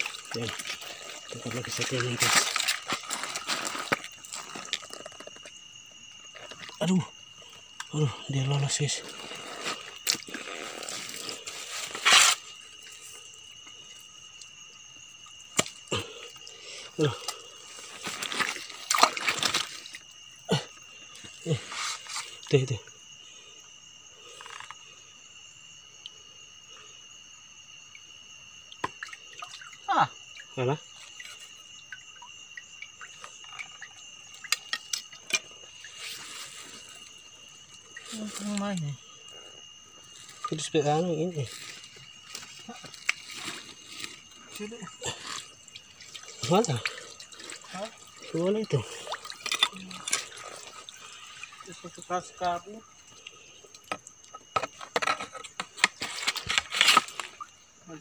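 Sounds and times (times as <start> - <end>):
stream water splashing: 0.0 - 5.4, 17.2 - 20.3, 28.6 - 38.9, 40.0 - 57.8.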